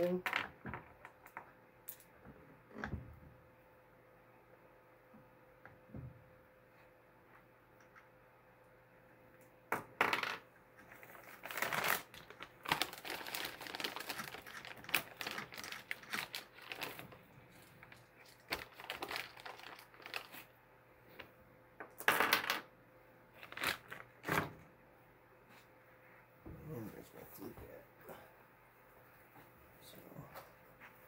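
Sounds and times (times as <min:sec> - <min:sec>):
plastic bag crinkling: 0:10.9 - 0:20.5, 0:23.4 - 0:24.3.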